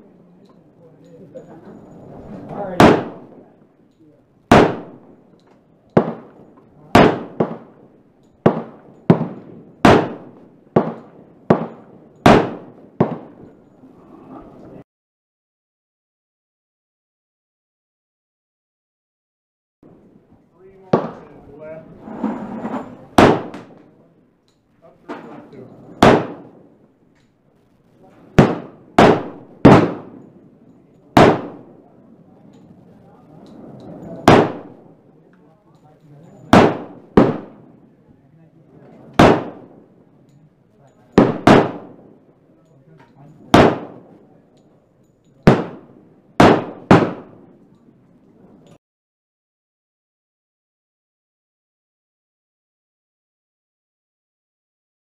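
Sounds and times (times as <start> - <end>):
pistol shots with echo: 2.6 - 3.6, 4.5 - 13.7, 20.8 - 21.5, 23.1 - 24.0, 25.1 - 27.0, 28.1 - 32.7, 34.2 - 35.1, 36.3 - 37.9, 39.0 - 40.0, 41.1 - 42.4, 43.3 - 47.8.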